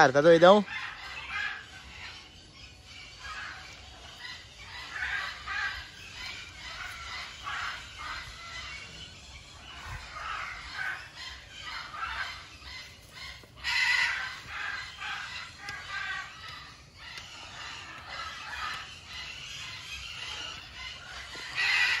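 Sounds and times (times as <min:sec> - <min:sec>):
macaw croaking calls: 0:00.0 - 0:22.0.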